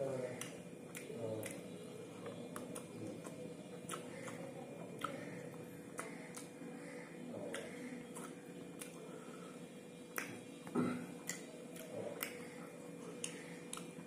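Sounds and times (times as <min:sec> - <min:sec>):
chewing and lip smacking: 0:00.4 - 0:06.7, 0:07.4 - 0:09.1, 0:10.1 - 0:10.4, 0:11.2 - 0:14.0.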